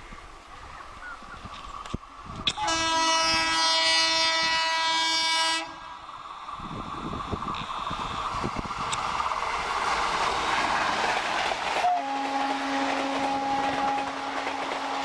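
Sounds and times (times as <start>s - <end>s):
train running noise: 0.0s - 15.0s
locomotive horn long blast: 2.4s - 5.9s, 11.8s - 15.0s.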